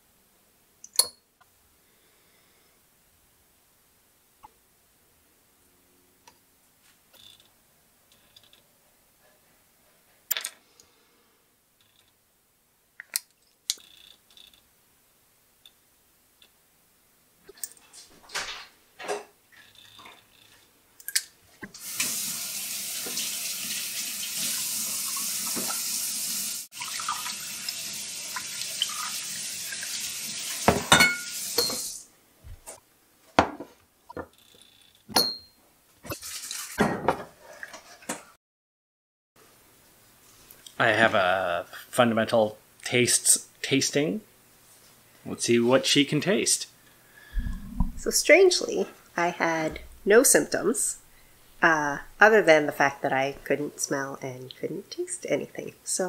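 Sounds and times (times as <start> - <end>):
glasses clinking on a countertop: 30.7 - 31.9, 35.2 - 35.6.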